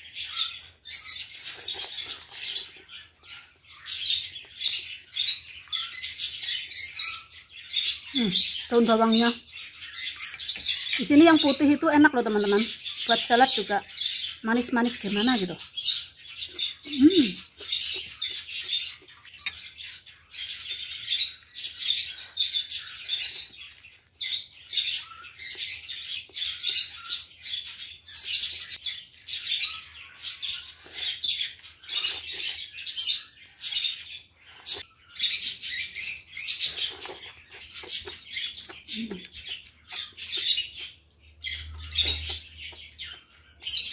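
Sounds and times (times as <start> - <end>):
slurping and chewing noodles: 0.9 - 2.9, 30.3 - 40.8.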